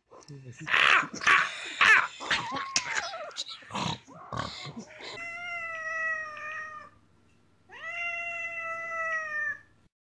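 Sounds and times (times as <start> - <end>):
cat yowling: 5.1 - 7.0, 7.7 - 9.7.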